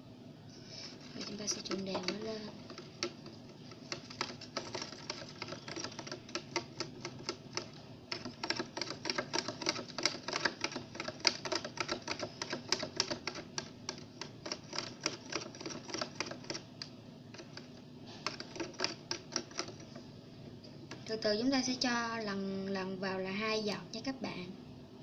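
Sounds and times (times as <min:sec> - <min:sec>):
stick clicking slime in plastic box: 0:01.0 - 0:20.0.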